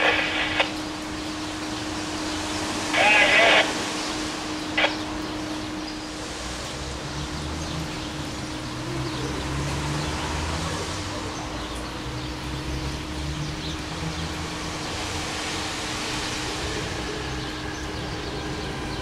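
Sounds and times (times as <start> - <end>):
steady hum: 0.0 - 8.7
electric train rumbling: 0.0 - 19.0.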